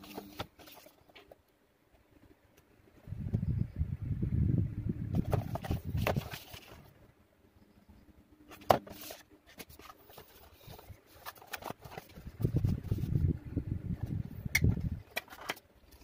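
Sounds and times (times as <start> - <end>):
cardboard rustling: 0.0 - 1.4, 5.2 - 6.9, 8.5 - 13.2.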